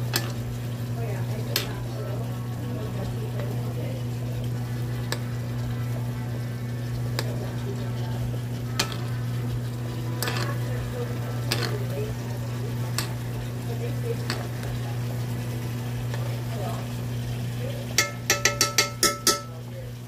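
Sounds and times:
steady low hum: 0.0 - 20.0
steaks frying in a pan: 0.0 - 20.0
spoon clicking against pan: 11.5 - 11.9, 18.0 - 19.5.

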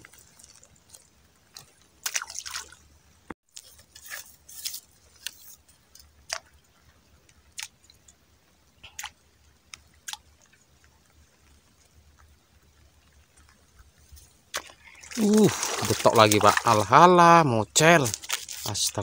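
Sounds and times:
small splashes of fish pecking: 0.0 - 2.9, 8.8 - 13.6, 14.4 - 17.0
water plops and drips: 0.0 - 2.9, 8.8 - 13.6, 14.5 - 17.2.

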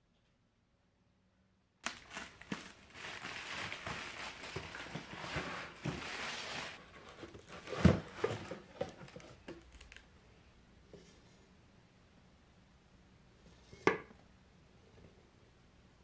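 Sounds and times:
cardboard and plastic rustling: 1.8 - 10.0
box knocks and thump: 7.6 - 9.0.

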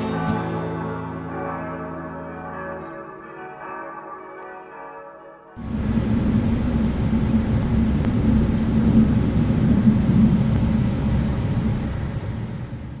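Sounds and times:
train rumbling: 5.6 - 13.0.

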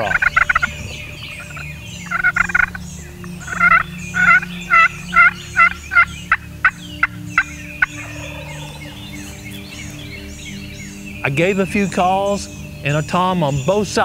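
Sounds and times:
turkey call yelps: 0.0 - 2.8, 3.4 - 9.9.

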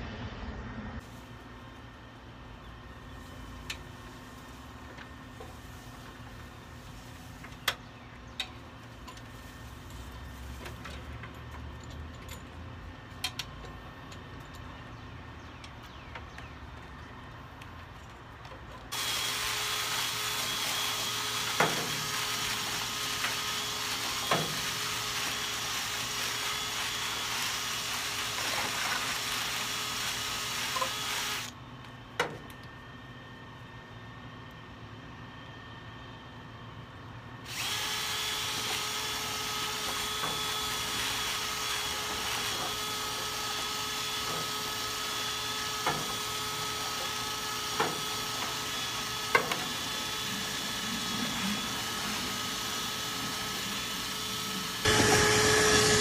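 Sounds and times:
cordless drill spinning brush: 3.2 - 7.7, 18.9 - 31.6, 37.5 - 56.0.

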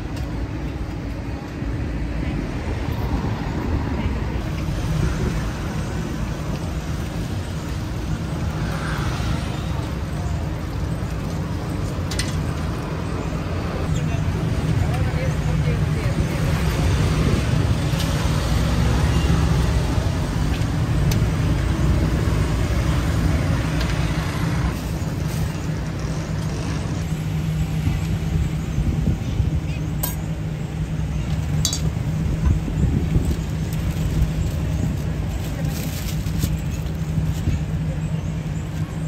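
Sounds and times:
traffic rumble: 0.0 - 39.0.

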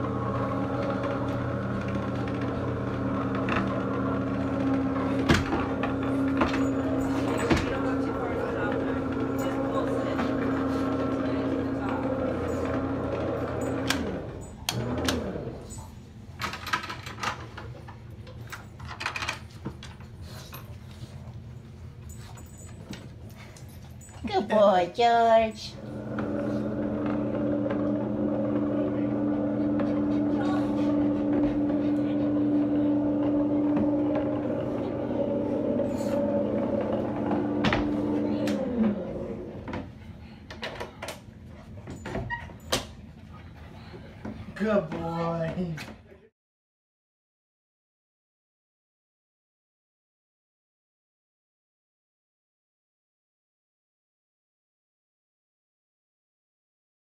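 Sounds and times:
electric motor winding down: 0.0 - 15.8, 25.8 - 39.8.

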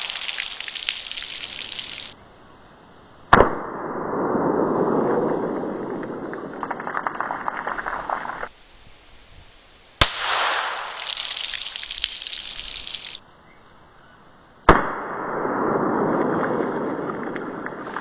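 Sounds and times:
water splashing and gushing: 0.0 - 2.2, 10.6 - 13.2
pistol shots: 10.0 - 11.0.

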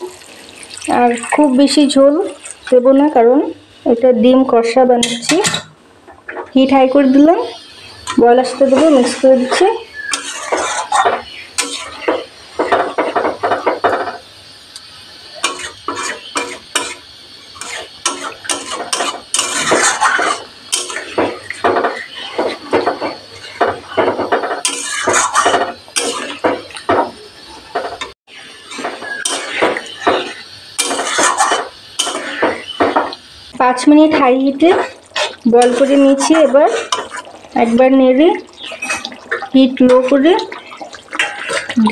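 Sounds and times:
metal spatula scraping a pan: 7.4 - 14.2, 15.4 - 27.1, 27.8 - 33.1, 34.0 - 38.0, 38.6 - 41.8.

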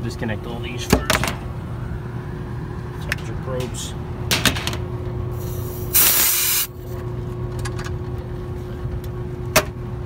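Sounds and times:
refrigerant vapor hissing: 5.4 - 6.7.

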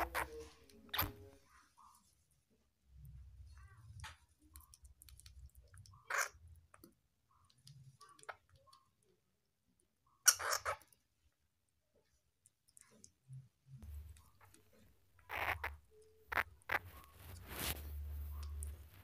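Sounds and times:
squirrel chewing clicks: 4.4 - 9.0.

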